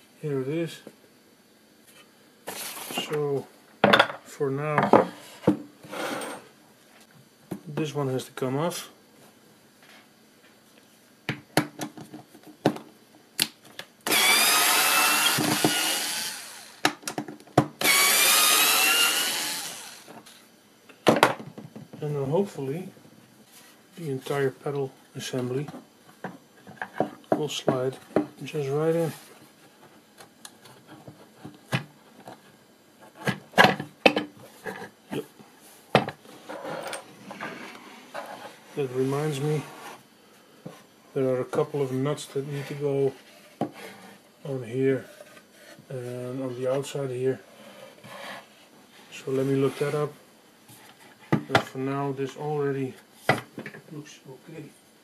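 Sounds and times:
cordless screwdriver motor whine: 0:14.1 - 0:16.8, 0:17.8 - 0:20.1.

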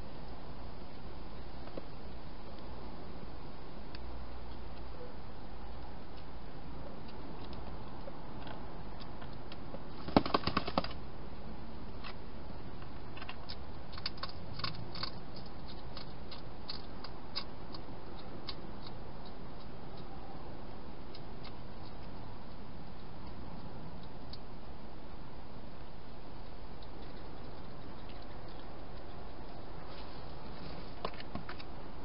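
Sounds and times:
hedgehog eating clicks: 0:12.8 - 0:24.5, 0:26.0 - 0:29.9.

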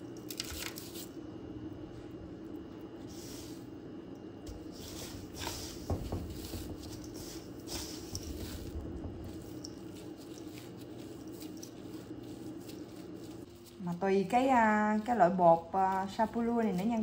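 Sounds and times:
low hum: 0:01.1 - 0:17.0
crumbs crunching and rustling: 0:06.2 - 0:13.9.

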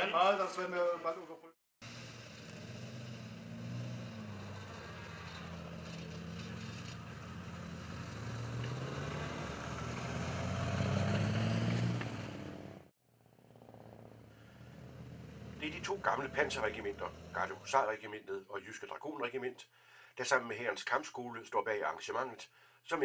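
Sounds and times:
diesel engines droning: 0:01.8 - 0:18.0
tracked vehicles driving past: 0:01.8 - 0:18.0.

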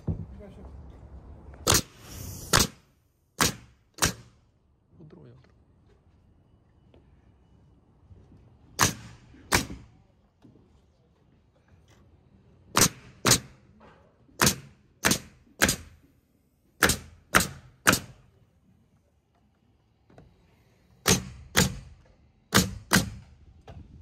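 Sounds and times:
pneumatic nailer firing nails: 0:01.6 - 0:04.4, 0:08.8 - 0:10.0, 0:12.7 - 0:16.1, 0:16.8 - 0:18.3, 0:21.0 - 0:23.5.

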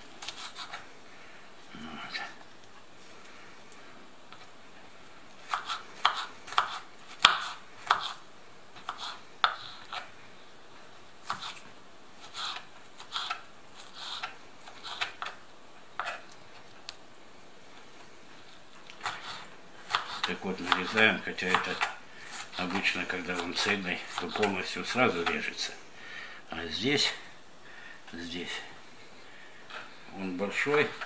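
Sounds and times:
knife dicing onion on wooden board: 0:05.5 - 0:08.2, 0:19.0 - 0:25.5.

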